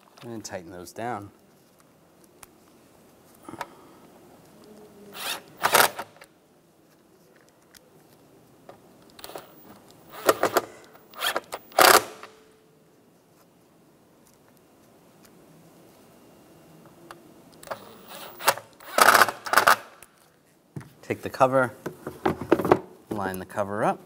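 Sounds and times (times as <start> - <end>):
bit driver driving screws: 17.6 - 19.9.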